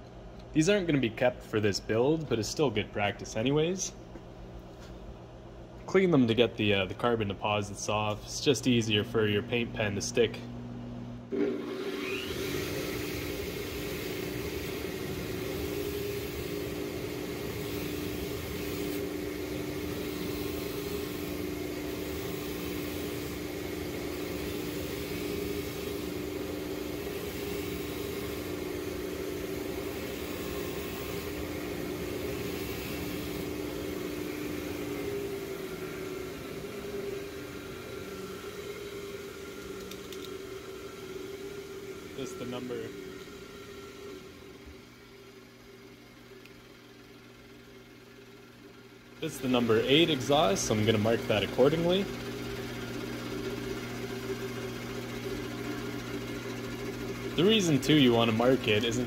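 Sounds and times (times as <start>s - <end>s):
bench grinder with wire wheel: 11.3s - 44.5s, 49.2s - 59.0s.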